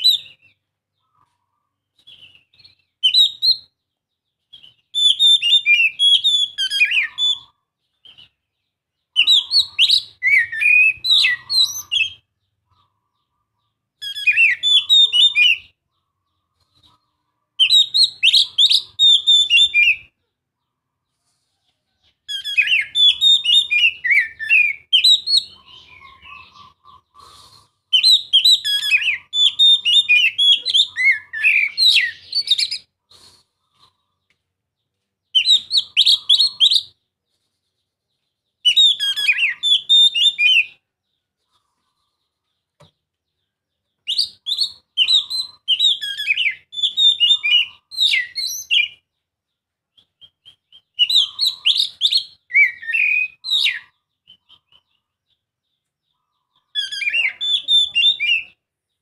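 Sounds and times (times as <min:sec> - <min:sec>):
bird singing whistled phrases: 0:02.1 - 0:03.7, 0:04.5 - 0:08.3, 0:09.2 - 0:12.3, 0:14.0 - 0:15.7, 0:17.6 - 0:20.1, 0:22.3 - 0:26.6, 0:27.9 - 0:32.9, 0:35.4 - 0:37.0, 0:38.6 - 0:40.8, 0:44.0 - 0:49.0, 0:50.1 - 0:54.6, 0:56.6 - 0:58.6.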